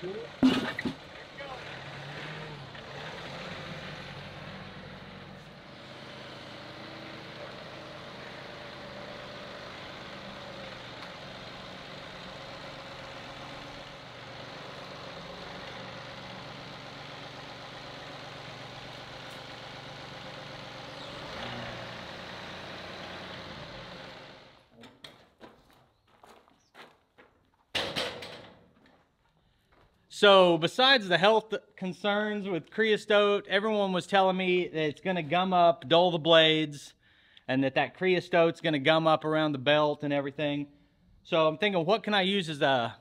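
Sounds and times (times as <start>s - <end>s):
tractor engine running: 0.0s - 24.7s.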